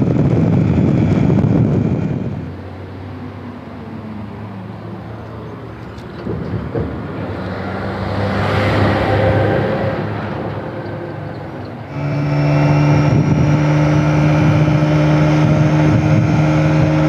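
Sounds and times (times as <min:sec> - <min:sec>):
wind on microphone: 0:00.0 - 0:02.6, 0:08.2 - 0:17.0
motorcycle engine running: 0:11.9 - 0:17.0.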